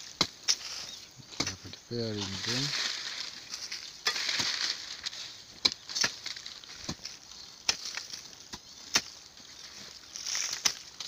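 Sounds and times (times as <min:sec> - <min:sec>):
earth scraping and crumbling: 0:00.0 - 0:11.0
hoe chopping into soil: 0:01.4 - 0:01.7, 0:04.0 - 0:09.2, 0:10.2 - 0:11.0.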